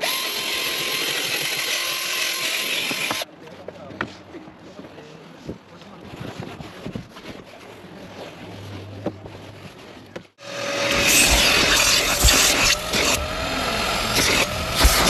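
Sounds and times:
power tool motor whine: 0.0 - 3.2, 10.4 - 15.0
light rubbing and brushing: 3.5 - 13.2
scrubbing and rushing noise: 5.8 - 15.0.

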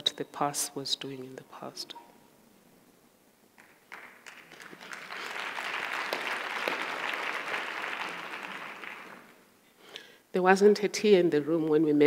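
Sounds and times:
audience applauding: 3.6 - 9.4.

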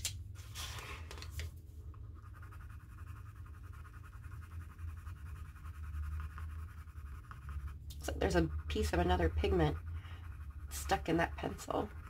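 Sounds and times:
steady low hum: 1.5 - 12.0
colored pencil scratching on paper: 2.0 - 12.0.

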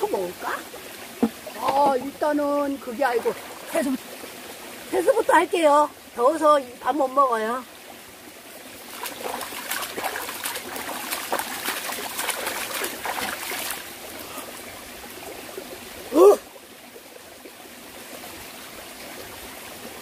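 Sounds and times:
stream trickling: 0.0 - 20.0
hands splashing water: 8.9 - 13.8
person exclaiming: 16.1 - 16.5.

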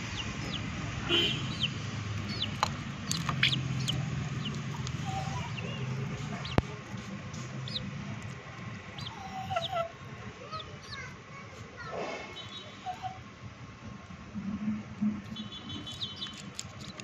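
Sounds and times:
chickens pecking in steel bowl: 0.0 - 9.1, 15.8 - 17.0.

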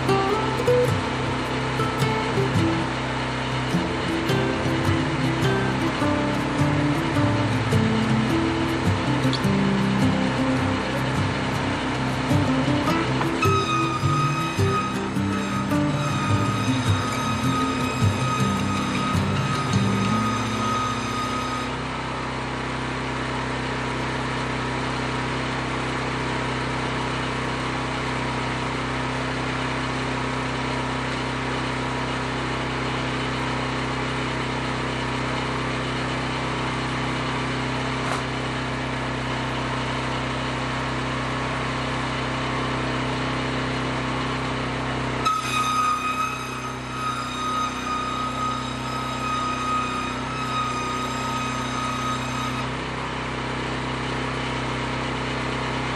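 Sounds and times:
high whine: 0.0 - 22.2
sawmill engine drone: 0.0 - 55.9.

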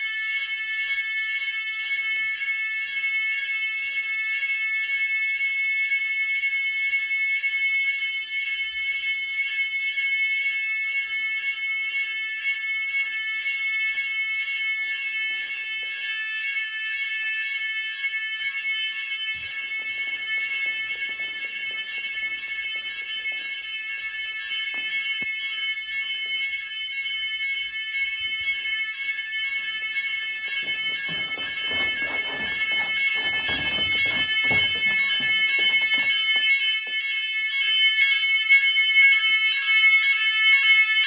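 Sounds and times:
fire alarm high-pitched tone: 0.0 - 41.0.

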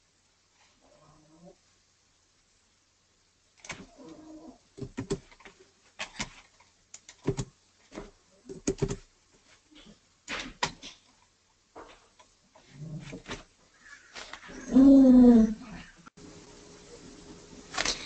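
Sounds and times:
computer keyboard keystrokes: 4.8 - 7.5, 8.5 - 9.0.

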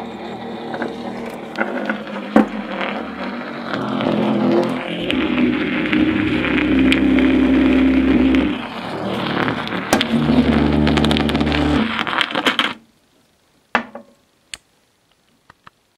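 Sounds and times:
low hum-like tones: 0.0 - 12.0
scratchy crackling disc noise: 0.0 - 13.5.

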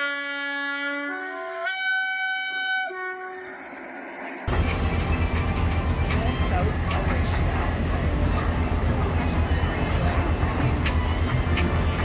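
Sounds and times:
train horn: 0.0 - 3.6
street noise: 2.5 - 12.0
low rumble: 3.4 - 8.9.

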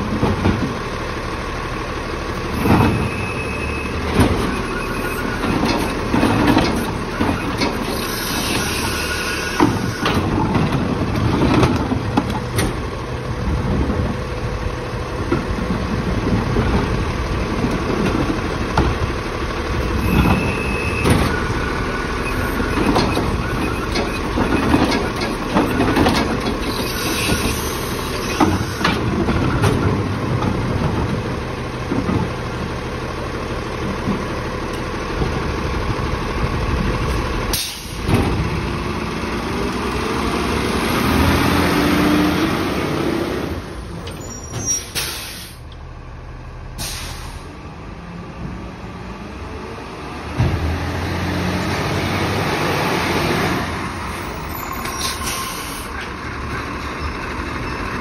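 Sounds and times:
knocks and clatters: 0.0 - 0.8, 5.4 - 7.8, 22.8 - 27.5
truck engine idling: 0.0 - 41.4.

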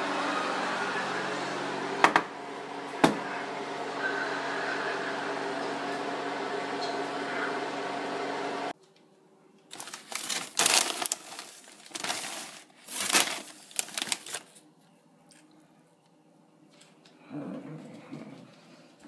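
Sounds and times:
plastic chip bag crinkling: 9.7 - 15.5.

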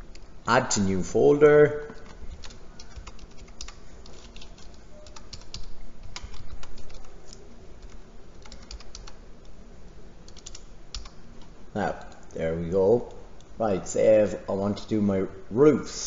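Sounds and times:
computer keyboard typing: 1.9 - 9.5, 10.2 - 12.3.

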